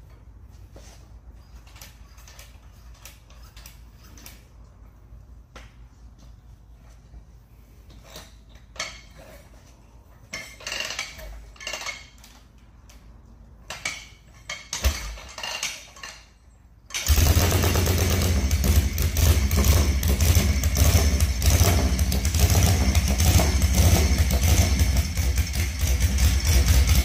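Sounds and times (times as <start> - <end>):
motorcycle engine running: 17.0 - 27.0.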